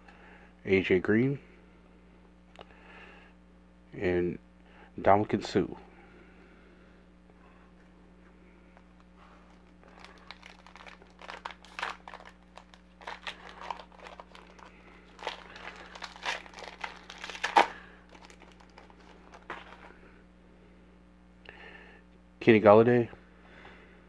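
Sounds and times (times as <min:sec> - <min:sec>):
foil wrapper tearing and crinkling: 0:09.0 - 0:19.9.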